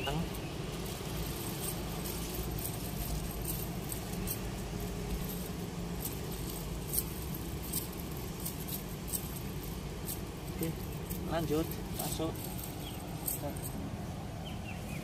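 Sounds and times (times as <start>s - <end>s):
net lead line clinking: 0.0s - 15.0s.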